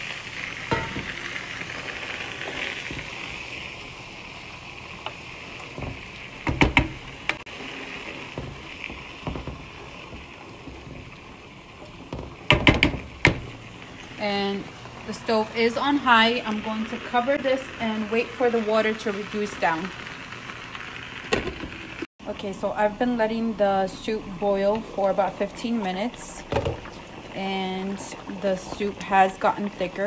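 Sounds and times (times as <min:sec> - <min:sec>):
water sizzling on rice: 0:00.0 - 0:22.7
spoon knocking against pot: 0:00.7 - 0:01.4, 0:05.8 - 0:07.4.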